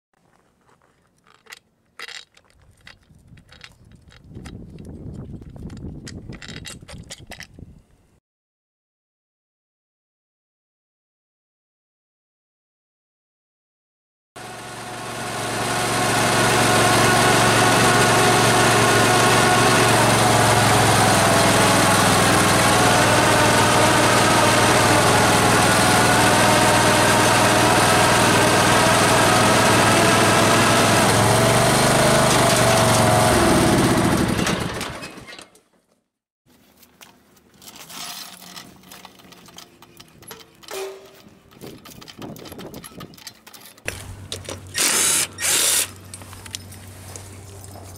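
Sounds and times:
lawn tractor engine running: 0:14.4 - 0:35.4, 0:37.6 - 0:47.9.

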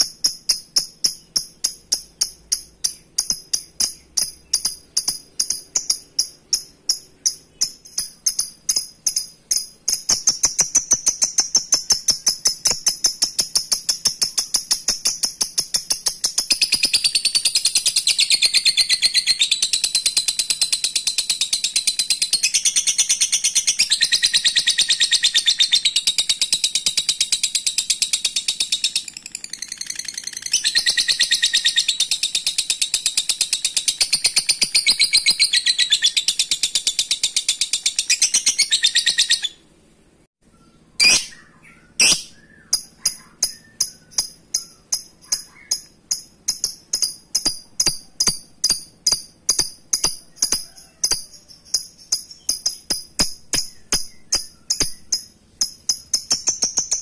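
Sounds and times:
lovebird chattering trill: 0:00.0 - 0:39.6, 0:40.7 - 0:57.0
sharp bird call: 0:40.6 - 0:45.8.

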